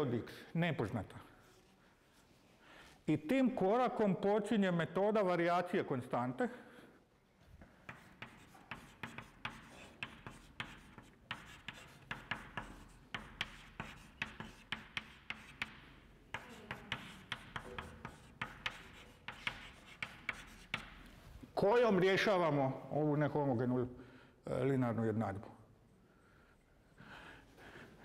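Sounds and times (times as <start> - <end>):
chalk tapping and scratching: 7.6 - 21.3.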